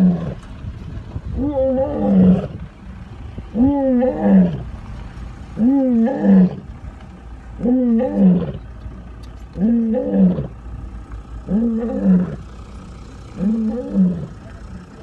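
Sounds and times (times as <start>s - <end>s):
lion roaring: 0.0s - 0.4s, 1.4s - 2.7s, 3.5s - 4.7s, 5.6s - 6.7s, 7.6s - 8.7s, 9.6s - 10.6s, 11.5s - 12.5s, 13.3s - 14.4s.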